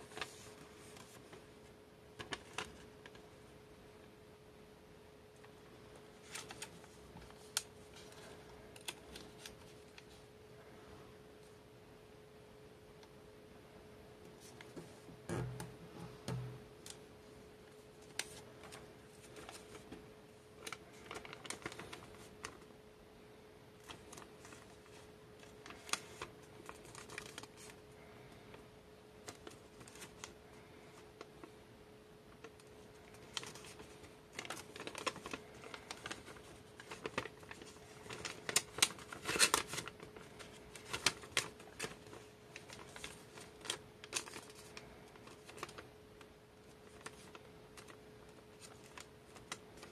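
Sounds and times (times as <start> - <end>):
paper crackling and rustling: 0.0 - 3.3, 5.4 - 10.3, 17.7 - 22.7, 23.8 - 28.6, 29.2 - 31.6, 32.3 - 49.9
faint steady hum: 0.0 - 49.9.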